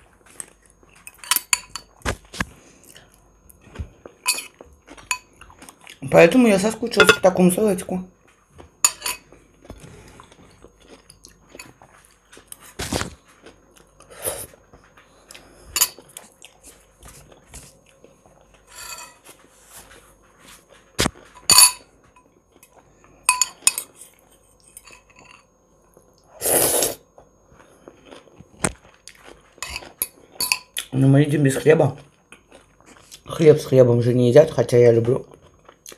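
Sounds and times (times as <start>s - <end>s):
chewing salad: 0.0s - 7.4s, 8.2s - 26.4s, 27.0s - 35.9s
fork clinking on ceramic bowl: 7.0s - 7.3s, 8.8s - 9.2s, 21.4s - 22.3s, 23.3s - 23.9s, 29.6s - 30.8s.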